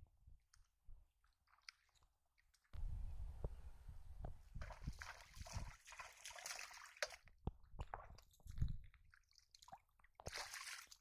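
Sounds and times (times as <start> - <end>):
hand splashing in muddy water: 9.1 - 11.0.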